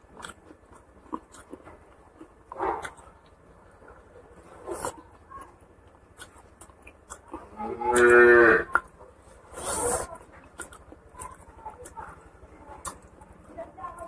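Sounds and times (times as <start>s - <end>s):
cow mooing: 7.6s - 8.7s.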